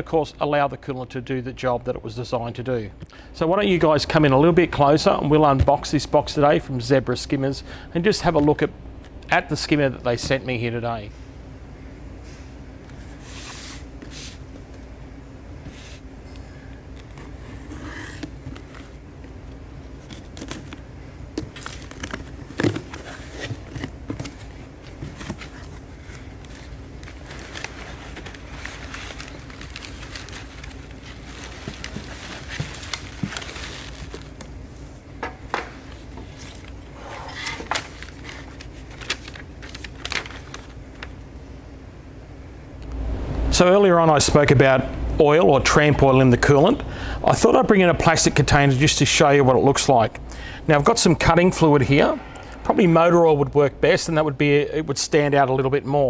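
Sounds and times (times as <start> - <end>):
steady low hum: 0.0 - 56.0
packing paper and plastic rustling: 16.7 - 34.8, 35.8 - 41.3.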